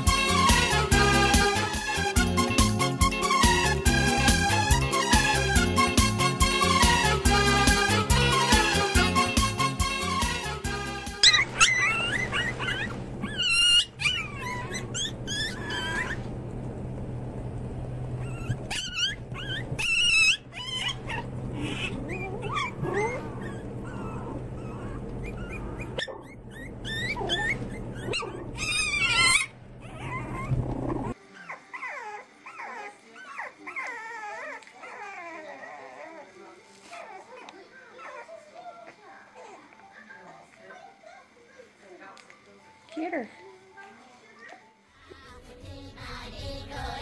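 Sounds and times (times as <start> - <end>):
puppies whimpering: 11.2 - 17.3, 18.0 - 41.7
puppies yipping and whining: 11.2 - 17.3, 18.0 - 41.6
steady low hum: 12.2 - 31.2.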